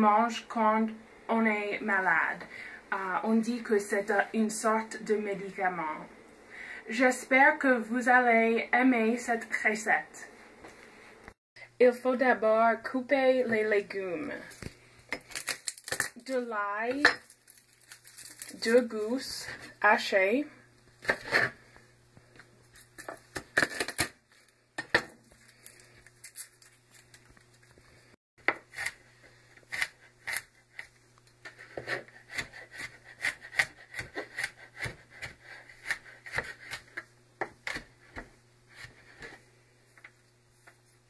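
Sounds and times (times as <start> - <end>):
knife chopping on plastic board: 31.7 - 39.3.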